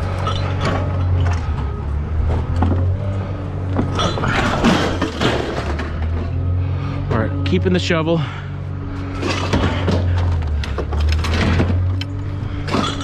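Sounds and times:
metal scrap clanking: 0.0 - 1.7, 3.8 - 6.4, 9.0 - 13.0
vehicle engine idling: 0.0 - 13.0.

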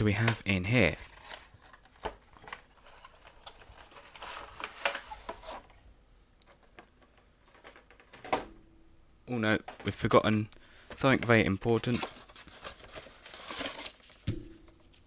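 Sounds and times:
cardboard scraping rustles: 1.0 - 5.7, 11.7 - 15.0.

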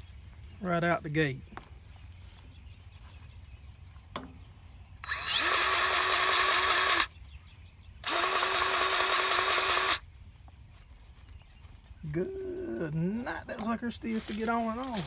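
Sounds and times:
grease gun motor pumping: 5.0 - 7.1, 8.0 - 10.0.

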